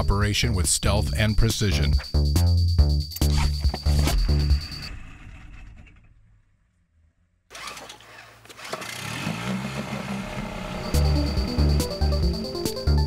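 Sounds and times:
music: 0.0 - 4.8, 10.7 - 13.0
small outboard motor running: 7.5 - 12.6.

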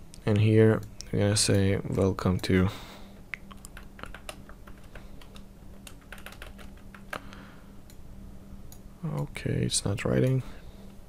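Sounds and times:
steady low hum: 0.0 - 11.0
computer keyboard keystrokes: 3.4 - 7.3.

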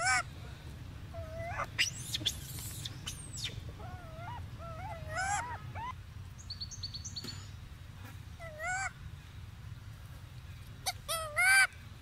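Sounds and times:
infant monkey cooing: 0.0 - 0.3, 1.1 - 6.0
low background noise: 0.0 - 12.0.

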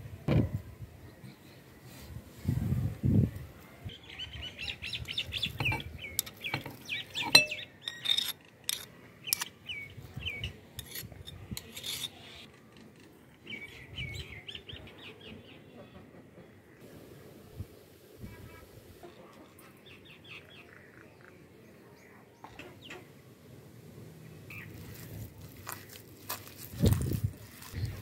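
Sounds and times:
bird chirping: 3.9 - 8.3
sharp clicks and knocks: 5.6 - 9.5.

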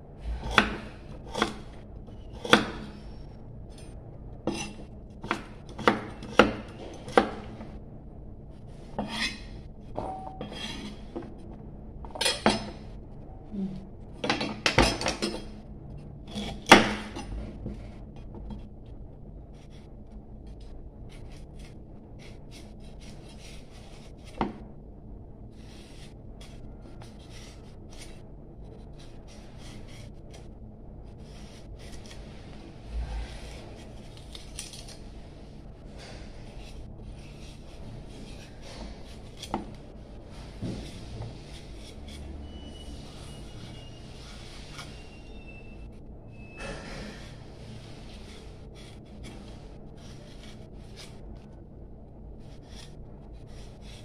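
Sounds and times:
knife scraping and paring: 0.2 - 7.7, 8.6 - 13.0, 14.2 - 15.6, 16.2 - 18.7, 19.5 - 24.7, 25.6 - 51.6, 52.4 - 54.0
knife chopping on wooden board: 0.4 - 1.6, 2.4 - 2.9, 4.5 - 7.5.

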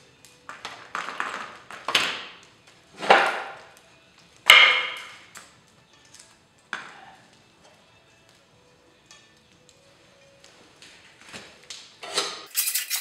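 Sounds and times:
metal and wood knocks and clanks: 0.5 - 3.7.

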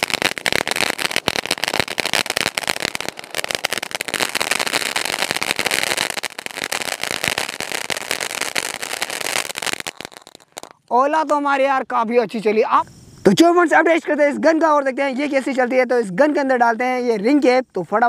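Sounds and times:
firework fountain crackling: 0.0 - 12.5.

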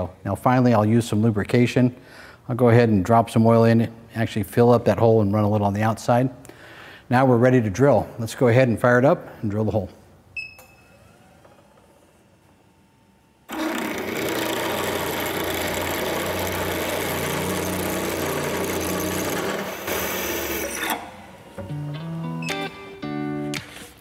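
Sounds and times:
drill bit cutting steel: 13.5 - 21.1.

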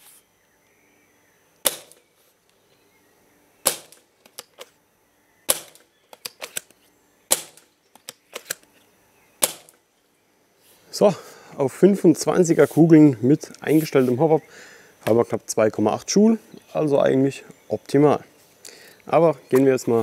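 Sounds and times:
airsoft rifle shots: 1.6 - 2.1, 3.6 - 4.7, 5.5 - 6.7, 7.3 - 8.6, 9.4 - 9.8.

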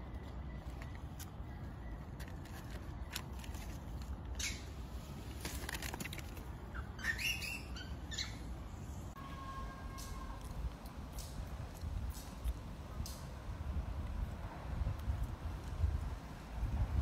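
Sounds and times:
monkey squealing: 6.7 - 8.5.

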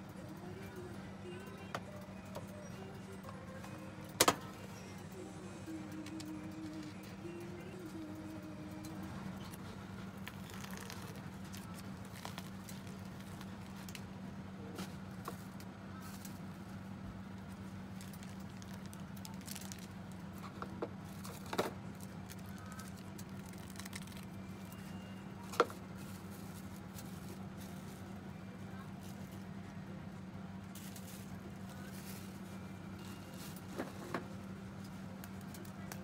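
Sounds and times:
steady electrical hum: 0.0 - 36.0
light clicks and crackles: 17.4 - 28.0.

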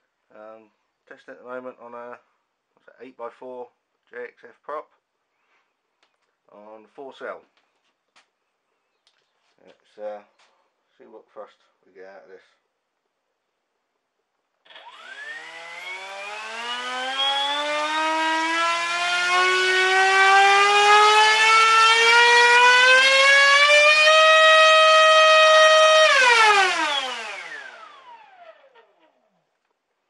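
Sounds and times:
electric motor propeller whine: 14.7 - 22.0, 23.8 - 29.0.

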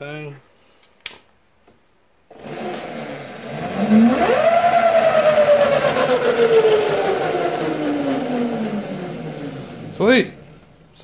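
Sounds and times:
electric motor whine: 2.3 - 10.6.

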